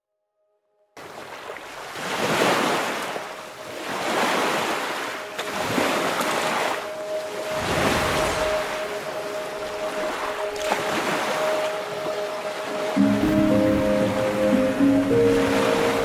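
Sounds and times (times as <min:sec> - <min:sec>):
lake waves washing onto pebbles: 0:01.0 - 0:09.1
wind: 0:01.0 - 0:16.0.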